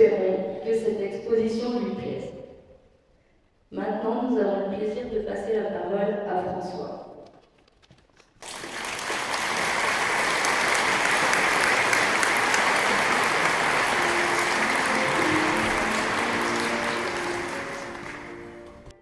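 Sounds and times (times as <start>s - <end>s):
audience applauding: 8.4s - 18.9s.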